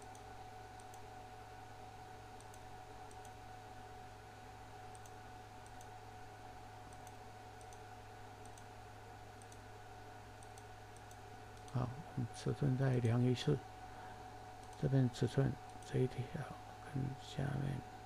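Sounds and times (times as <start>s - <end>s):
faint computer mouse clicks: 0.0s - 1.0s, 2.4s - 3.4s, 4.9s - 5.9s, 6.9s - 7.8s, 8.4s - 8.7s, 9.4s - 9.6s, 10.4s - 11.8s, 14.6s - 14.9s
steady low hum: 0.0s - 18.0s.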